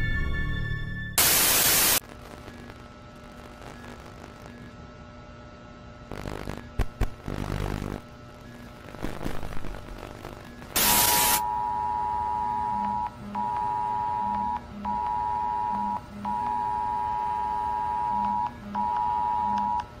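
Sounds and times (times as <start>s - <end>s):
burst of static: 1.2s - 4.8s, 6.1s - 11.4s
two-tone emergency alert signal: 10.8s - 19.8s.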